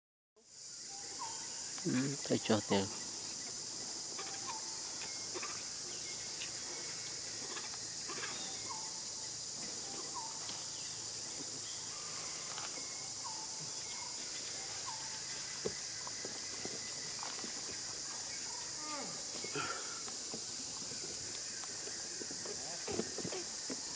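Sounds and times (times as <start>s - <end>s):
insects chorus: 0.4s - 23.9s.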